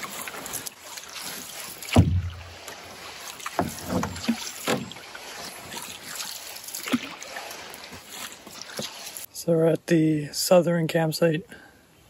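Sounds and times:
canoe paddles splashing: 0.0 - 9.3.

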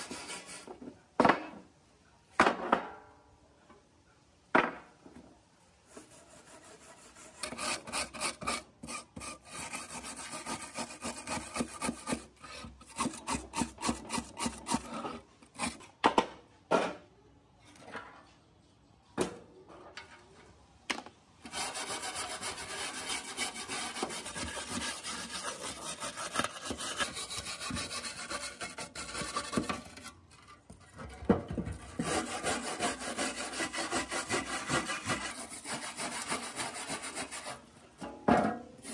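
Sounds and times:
scraper rasping rust off metal: 6.3 - 15.9, 21.5 - 30.8, 31.9 - 37.6.

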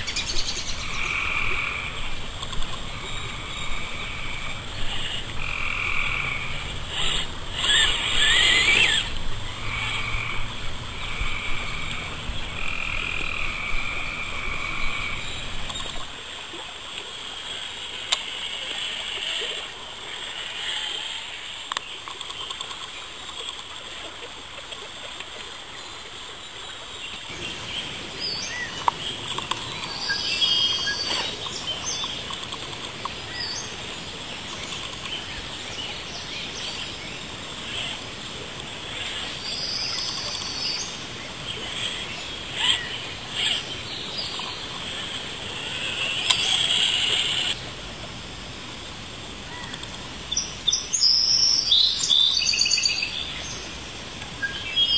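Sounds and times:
frogs trilling: 0.0 - 24.4, 27.2 - 47.6.

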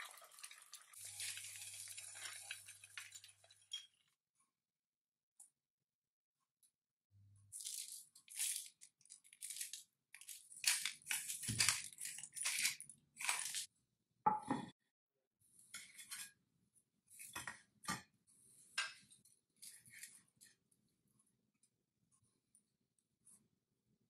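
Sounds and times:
pepper mill grinding: 7.6 - 13.7.

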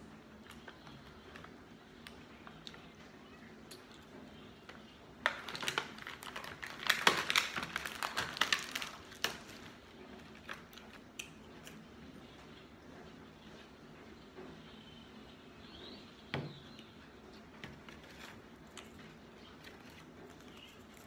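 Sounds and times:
plastic packaging crinkling: 5.2 - 11.1, 17.8 - 21.0.

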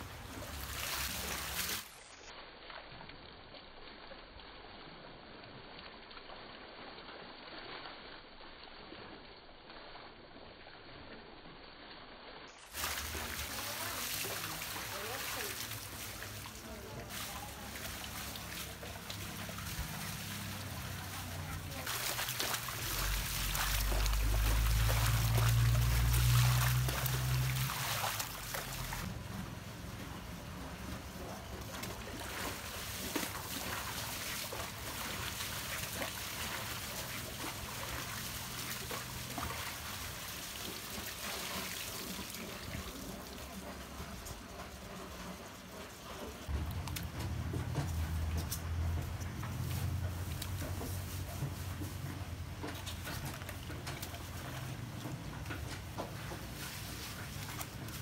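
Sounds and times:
water splashing: 0.0 - 2.3, 12.6 - 58.0
water poured from scoop: 0.0 - 9.8, 11.8 - 29.4, 30.7 - 44.7.

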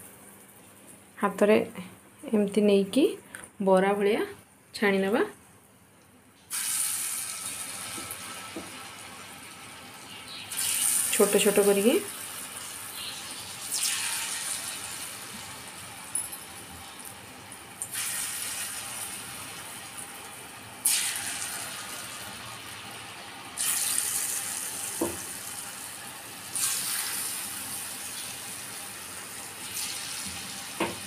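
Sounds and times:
batter sizzling in hot oil: 6.5 - 31.0.

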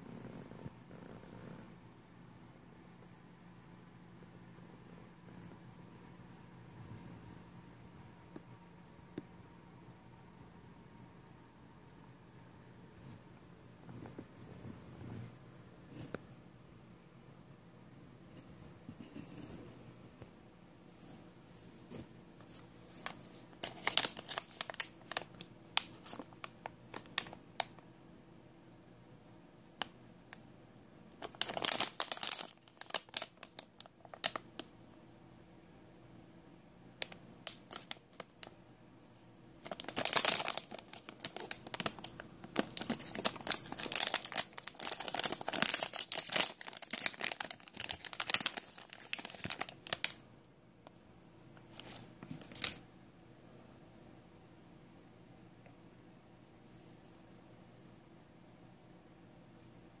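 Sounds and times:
plastic pack crinkling and tearing: 22.5 - 27.8, 31.1 - 34.7, 37.0 - 38.5, 39.6 - 50.2, 51.7 - 52.8.

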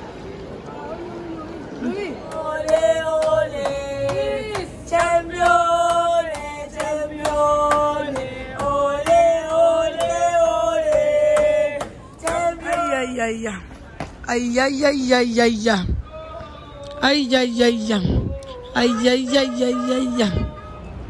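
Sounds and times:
women singing in a chant: 2.2 - 13.8, 14.6 - 21.0.

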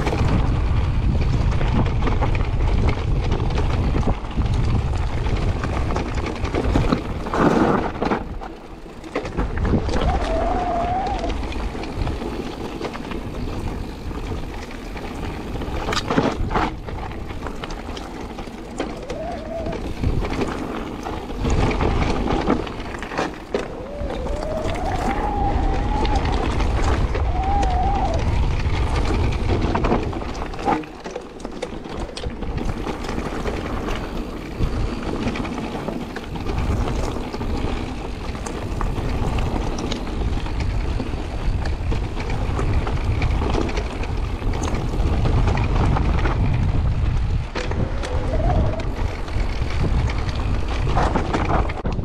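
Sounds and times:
bike tyres rumbling on gravel: 0.0 - 52.0
wind buffeting microphone: 0.0 - 52.0.

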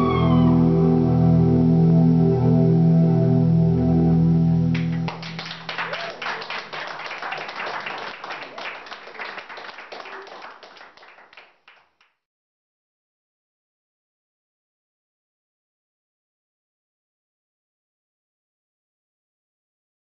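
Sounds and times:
held keyboard chord: 0.0 - 5.4
audience applause: 4.7 - 11.9.

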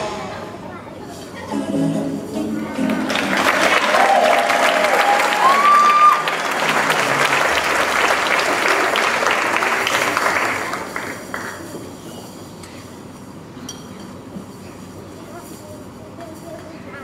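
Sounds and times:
audience applauding: 2.8 - 11.6.

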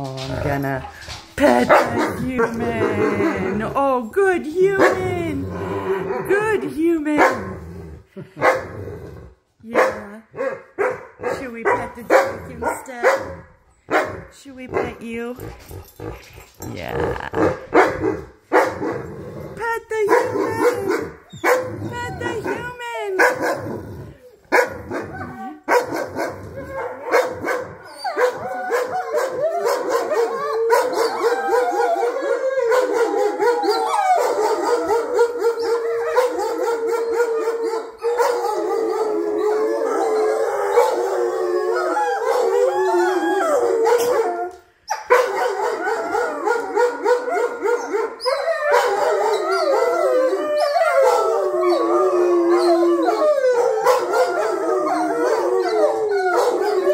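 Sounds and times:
wolfdogs howling in chorus: 1.0 - 3.8, 4.7 - 6.6, 23.4 - 56.9.

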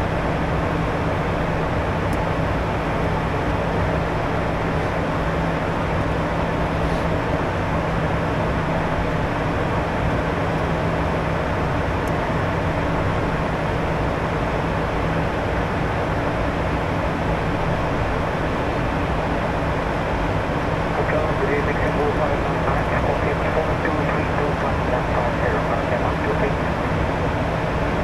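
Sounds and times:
jet cockpit noise: 17.4 - 28.0.

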